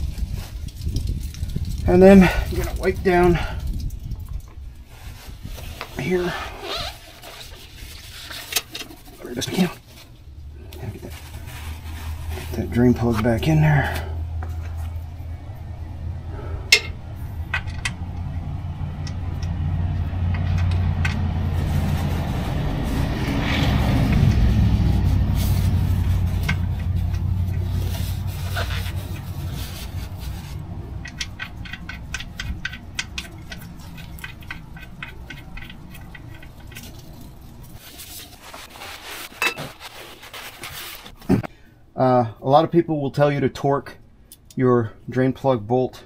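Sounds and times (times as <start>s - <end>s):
vehicle engine rumble passing: 6.0s - 39.3s.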